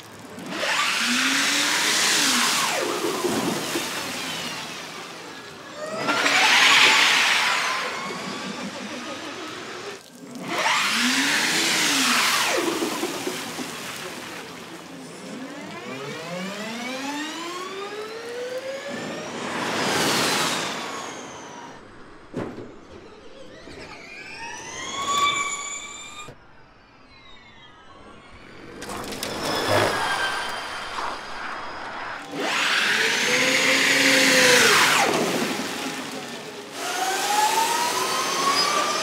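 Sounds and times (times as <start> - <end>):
electric race car whining: 0.0 - 39.0.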